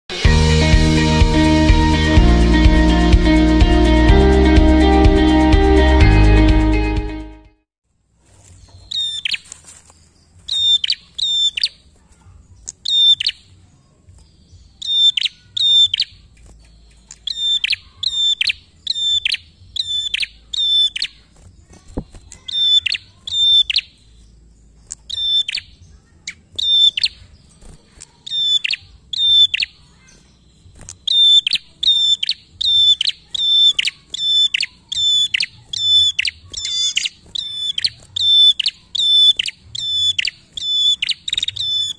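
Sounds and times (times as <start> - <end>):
songbird sharp descending calls: 17.2 - 21.3, 28.2 - 41.9.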